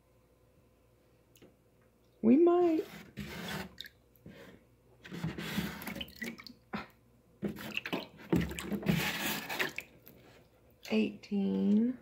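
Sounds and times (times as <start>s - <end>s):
water dripping: 6.0s - 6.6s.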